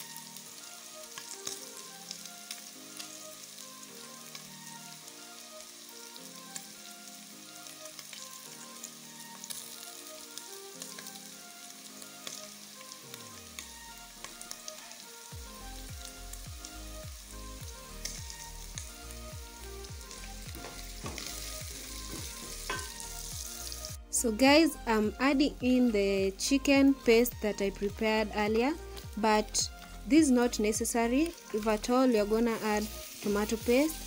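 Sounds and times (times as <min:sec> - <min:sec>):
faint background music: 0:00.0 - 0:34.0
meat sizzling in hot oil: 0:00.0 - 0:34.0.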